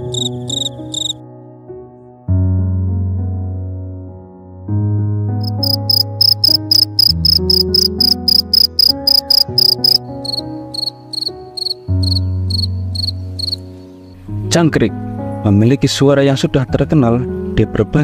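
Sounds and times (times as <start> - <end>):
field crickets chirping: 0.0 - 1.2, 5.4 - 14.1.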